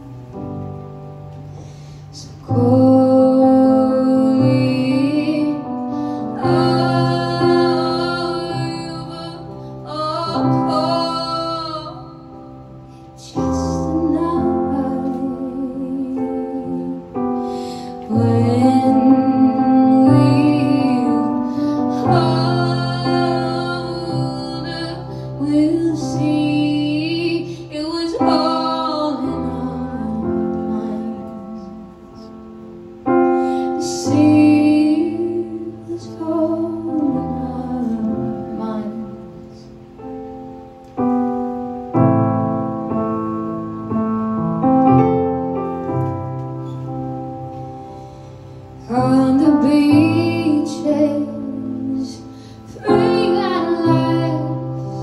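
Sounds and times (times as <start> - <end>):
sustained piano chords: 0.0 - 55.0
woman singing wordless notes: 1.5 - 42.0, 48.0 - 55.0.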